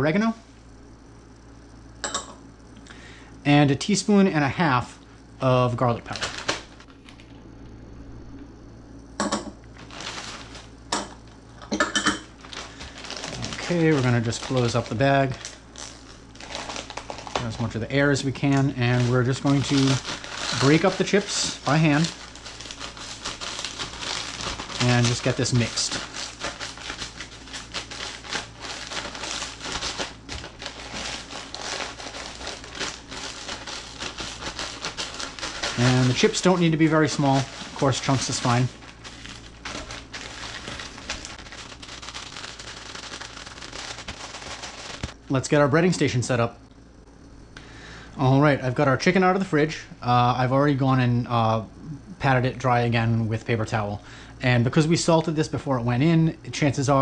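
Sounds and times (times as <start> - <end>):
plastic bag crinkling: 5.8 - 7.3, 9.7 - 10.8, 12.2 - 45.2
chips being crushed: 6.0 - 7.3, 9.7 - 11.1, 12.3 - 17.8, 18.4 - 45.2.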